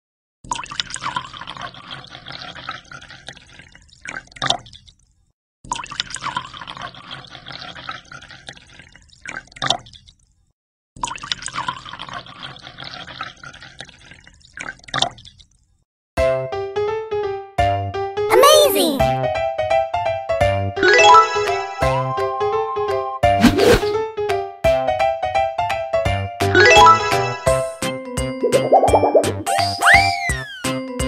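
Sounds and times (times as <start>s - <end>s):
water pouring into aquarium: 0.4s - 15.8s, 28.5s - 29.5s.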